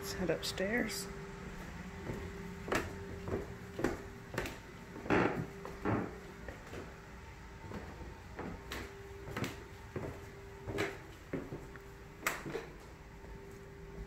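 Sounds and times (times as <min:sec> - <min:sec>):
footsteps climbing stairs: 0:01.6 - 0:07.0, 0:07.6 - 0:13.4.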